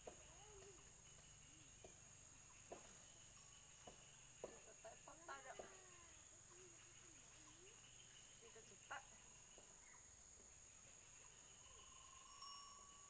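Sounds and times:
faint bird call: 0:00.0 - 0:03.2.

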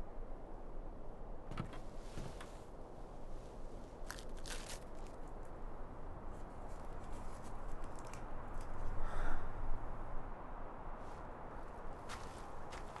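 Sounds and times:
small ticks and rustles: 0:04.0 - 0:05.6, 0:06.3 - 0:09.0.

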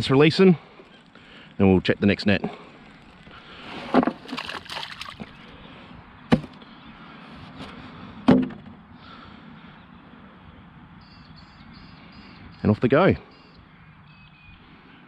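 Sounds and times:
small splashes into water: 0:04.2 - 0:05.4.

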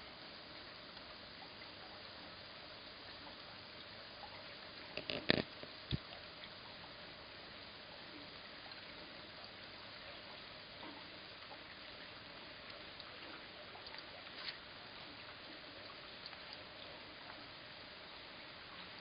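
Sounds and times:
sharp clicks and knocks: 0:05.0 - 0:06.1.

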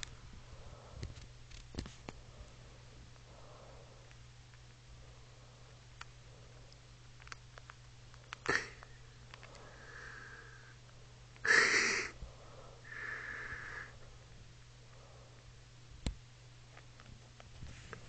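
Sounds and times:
person sniffing: 0:08.4 - 0:08.8, 0:11.4 - 0:13.9
person breathing through nose: 0:09.4 - 0:10.8, 0:11.5 - 0:14.0.

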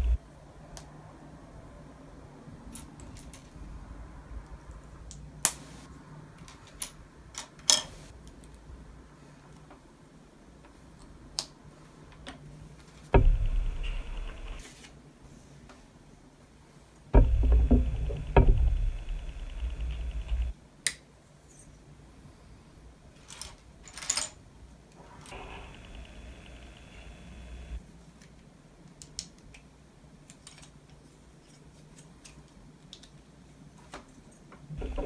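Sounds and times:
plastic pieces clicking together: 0:28.9 - 0:33.2.

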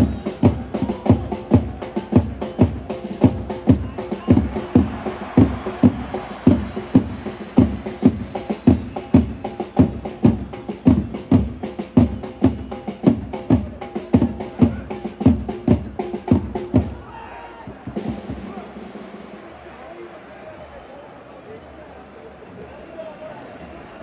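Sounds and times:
drum beating heavy strikes: 0:00.0 - 0:17.1, 0:17.7 - 0:19.5
stadium crowd noise: 0:00.0 - 0:24.0.

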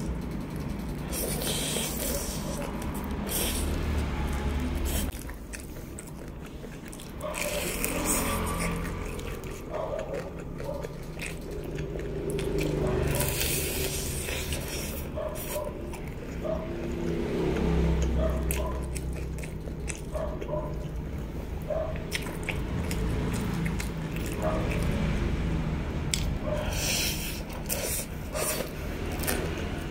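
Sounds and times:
chewing fried chicken: 0:00.0 - 0:29.9.

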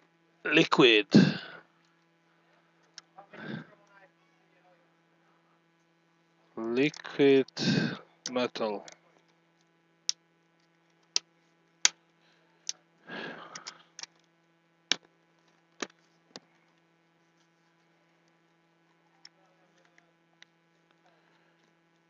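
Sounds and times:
steady electrical hum: 0:00.0 - 0:22.0
sharp plastic clicks: 0:13.4 - 0:14.3.

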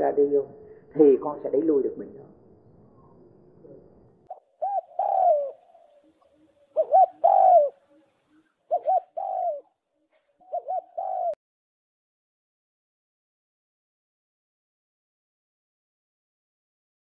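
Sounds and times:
bird cooing: 0:04.3 - 0:11.4.

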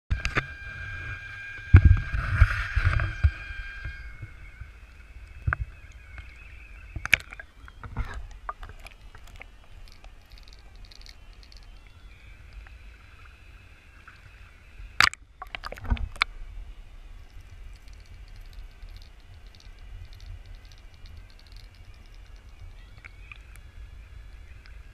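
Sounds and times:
water sloshing around camera: 0:00.2 - 0:24.9
sharp clicks: 0:04.9 - 0:12.7, 0:17.2 - 0:23.7.

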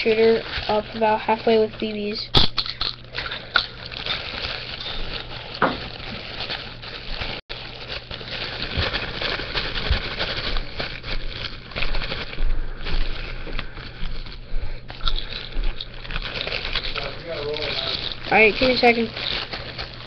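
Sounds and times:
plastic pellets pouring into bottle: 0:16.8 - 0:19.6.

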